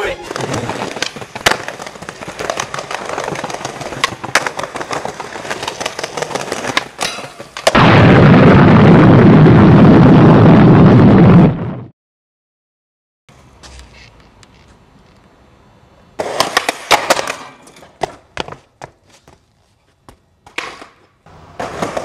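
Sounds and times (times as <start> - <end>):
skateboard wheels rolling on pavement: 0.0 - 7.8, 13.3 - 22.0
wheels clicking over cracks: 0.3 - 7.8.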